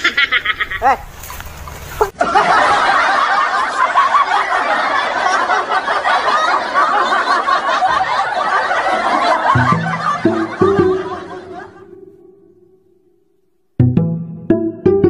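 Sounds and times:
laugh track: 0:00.0 - 0:01.0, 0:02.0 - 0:12.7.

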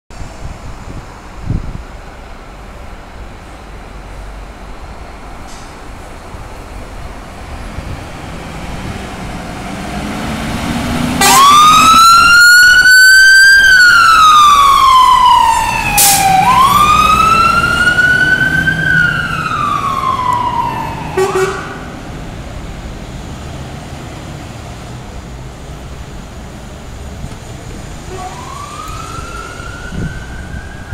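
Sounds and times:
fire engine engine noise: 0:00.1 - 0:30.9
road traffic noise: 0:00.1 - 0:30.9
siren wailing: 0:11.1 - 0:21.9, 0:28.1 - 0:30.9.

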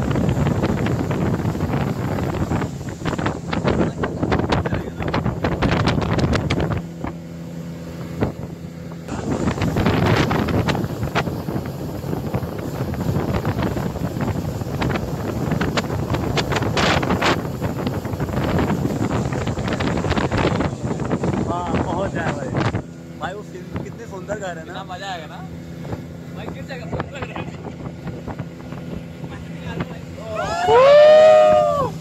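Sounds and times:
boat engine drone: 0:00.0 - 0:32.0
water rushing from wake: 0:00.0 - 0:32.0
wind buffeting microphone: 0:00.0 - 0:32.0.

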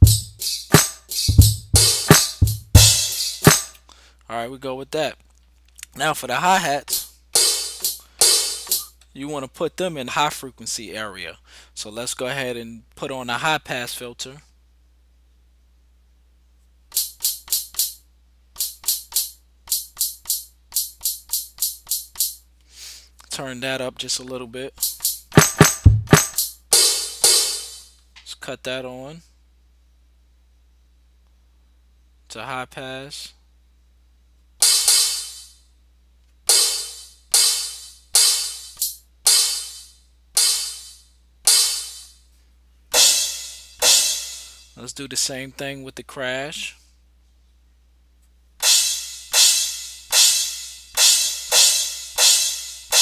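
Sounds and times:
thin bright hi-hat hits: 0:00.0 - 0:03.9, 0:06.8 - 0:09.0, 0:16.9 - 0:18.0, 0:18.6 - 0:22.4, 0:24.7 - 0:28.0, 0:34.6 - 0:35.6, 0:36.5 - 0:42.3, 0:42.9 - 0:44.8, 0:48.6 - 0:53.0.

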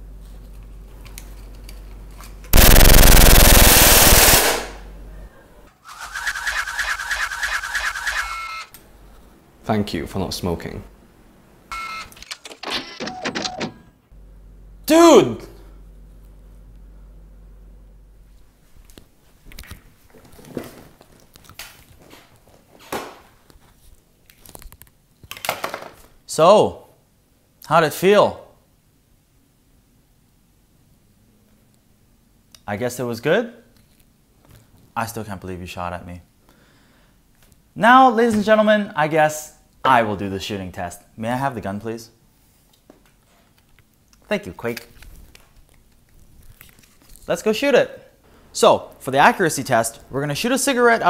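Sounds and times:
low steady hum: 0:00.0 - 0:05.7, 0:14.1 - 0:19.0
automatic gunfire: 0:02.6 - 0:04.8.

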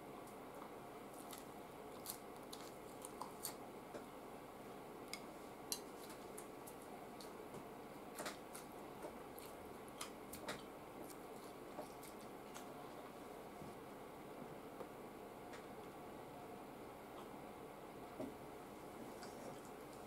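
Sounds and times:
man chewing food: 0:00.6 - 0:04.1, 0:05.0 - 0:13.6.

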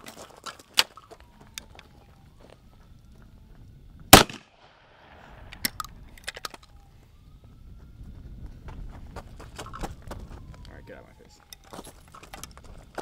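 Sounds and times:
shotgun blast: 0:04.1 - 0:05.2.

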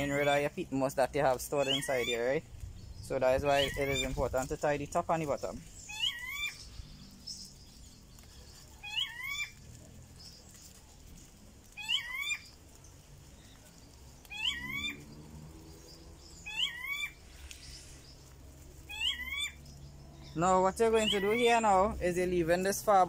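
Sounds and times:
animal calling: 0:00.0 - 0:00.6, 0:01.4 - 0:02.5, 0:03.4 - 0:22.1.

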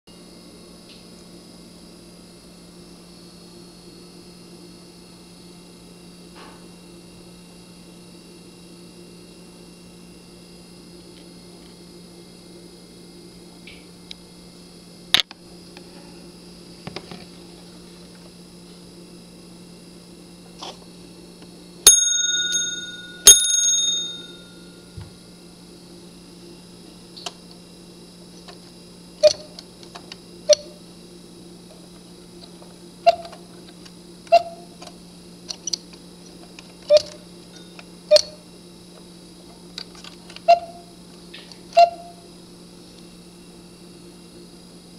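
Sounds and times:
clock bell struck: 0:21.9 - 0:24.8
cuckoo clock pipe notes: 0:40.5 - 0:40.8, 0:41.8 - 0:42.2.

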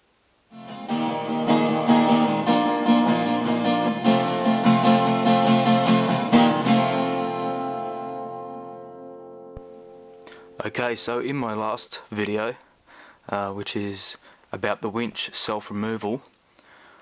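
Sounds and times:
strummed guitar chords: 0:00.5 - 0:11.5.

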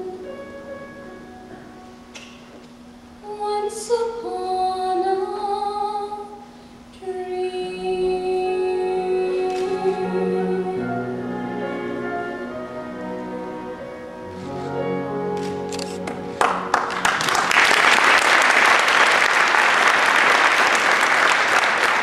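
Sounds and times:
soft sustained accompaniment: 0:00.0 - 0:02.2, 0:07.0 - 0:17.2
woman singing a slow ballad: 0:03.2 - 0:11.1.

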